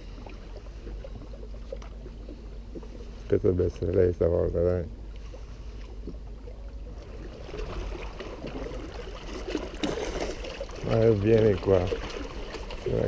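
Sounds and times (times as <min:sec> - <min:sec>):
water lapping against rocks: 0:00.0 - 0:13.0
fish splashing: 0:05.0 - 0:13.0.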